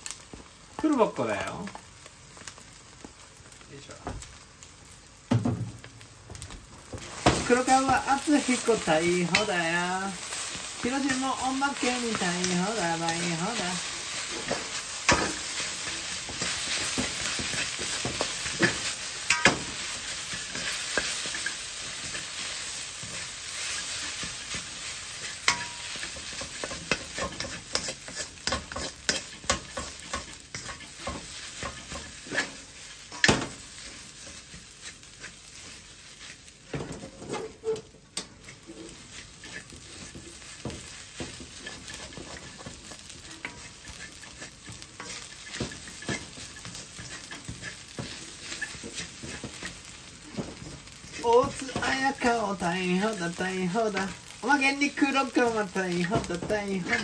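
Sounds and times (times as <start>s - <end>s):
rice sizzling in a wok: 0.0s - 57.0s
wooden spatula scraping: 7.0s - 57.0s.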